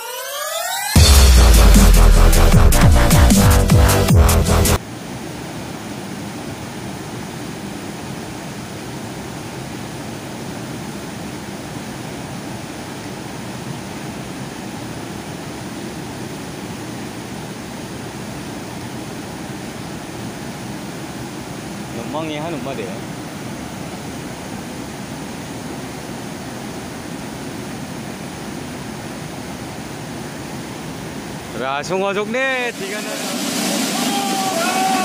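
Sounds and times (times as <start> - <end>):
electronic dance music: 0.0 - 4.8, 32.3 - 35.0
river rapids rushing: 4.8 - 35.0.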